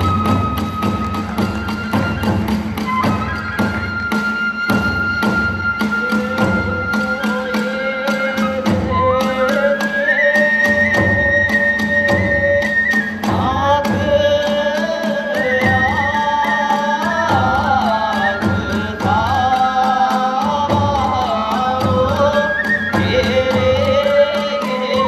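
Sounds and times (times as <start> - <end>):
drum beat: 0.0 - 9.7
bamboo flute: 0.0 - 25.0.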